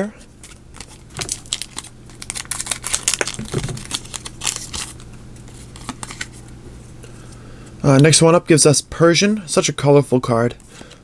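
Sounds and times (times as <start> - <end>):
foil wrapper crinkling and tearing: 0.4 - 6.3.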